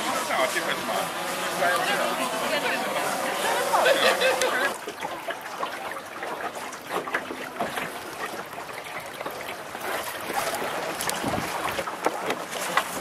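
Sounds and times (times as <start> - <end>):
lake water lapping and splashing: 0.0 - 13.0.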